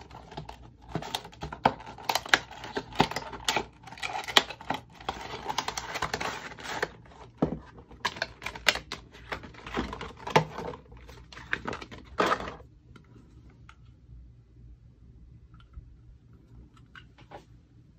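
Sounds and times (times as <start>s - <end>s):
packaging crinkling and rustling: 0.0s - 12.6s.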